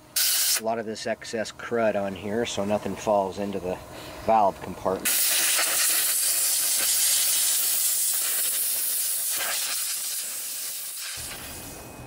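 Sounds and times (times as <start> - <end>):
air blow gun hissing: 0.0 - 0.7, 5.0 - 11.9.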